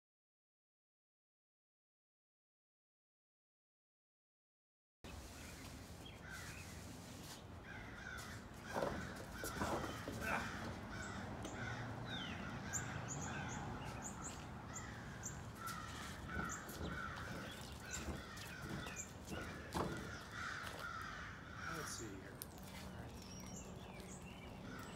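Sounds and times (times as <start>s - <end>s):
birds calling: 5.1s - 24.9s
loud knocks: 16.2s - 20.2s.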